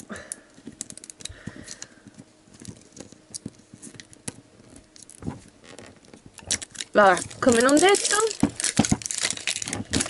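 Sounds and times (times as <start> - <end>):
fingers peeling plastic wrap: 0.6 - 10.0.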